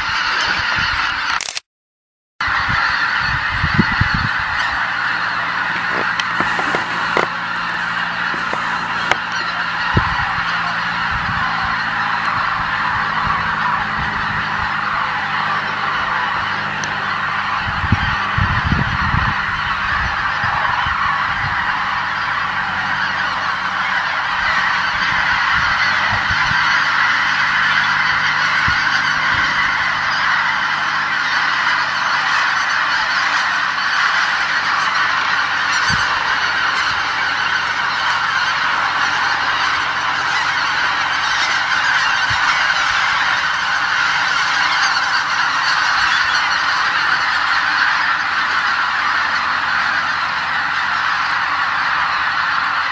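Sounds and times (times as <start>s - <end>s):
flock of geese honking: 0.0s - 1.5s, 2.4s - 52.9s.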